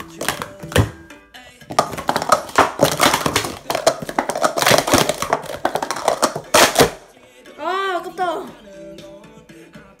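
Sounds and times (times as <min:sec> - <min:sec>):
plastic cups clattering: 0:00.0 - 0:01.0, 0:01.7 - 0:07.1.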